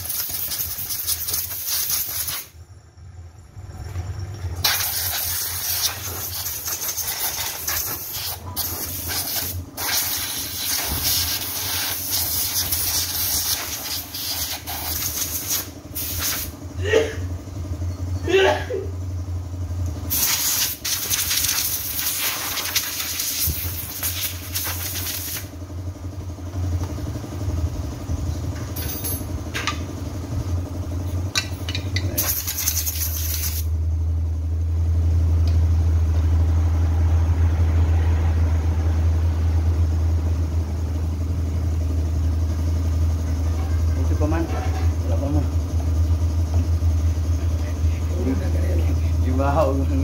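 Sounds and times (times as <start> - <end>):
compressed air hissing: 0.0 - 2.5, 4.6 - 16.6, 20.1 - 25.5, 32.2 - 33.7
chainsaw engine idling: 41.0 - 50.0.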